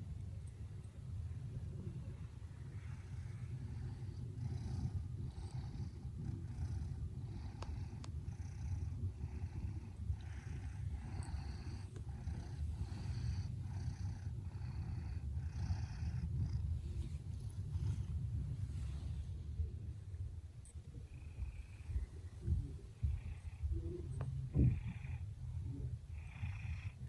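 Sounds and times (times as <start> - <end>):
cat purring: 0.0 - 27.0
breathy hiss: 2.6 - 19.3.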